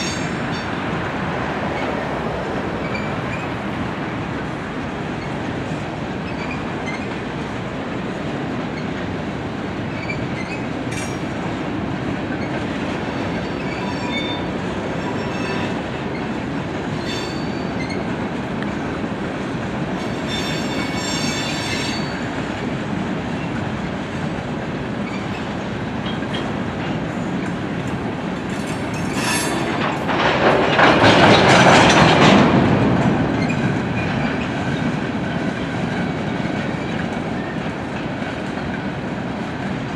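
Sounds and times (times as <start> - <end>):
train wheels rumbling on rails: 0.0 - 39.9
high-pitched wheel squeals: 13.1 - 16.2, 17.0 - 18.0, 20.0 - 22.2.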